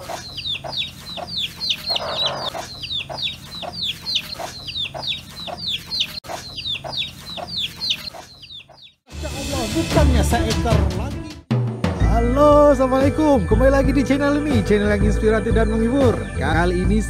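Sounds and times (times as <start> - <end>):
chicks peeping: 0.0 - 9.0
hen clucking: 0.0 - 9.0.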